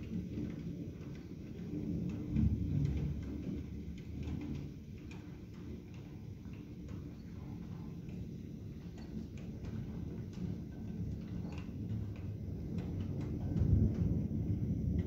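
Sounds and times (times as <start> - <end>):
thunder rumbling: 0.0 - 15.0.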